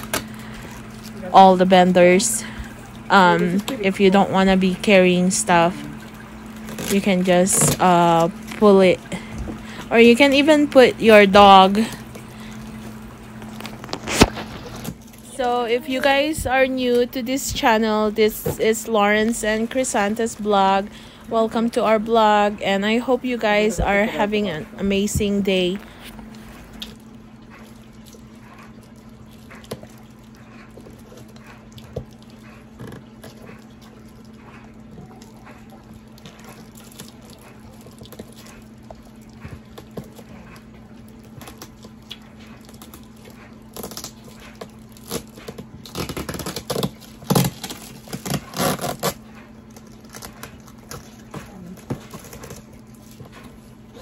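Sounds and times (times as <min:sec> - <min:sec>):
steady low hum: 0:00.0 - 0:54.0
cardboard box scraping and crackling: 0:45.0 - 0:49.2.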